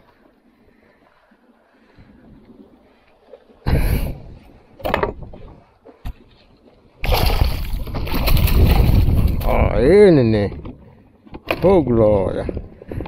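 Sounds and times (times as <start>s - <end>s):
water splashing: 0.0s - 10.2s.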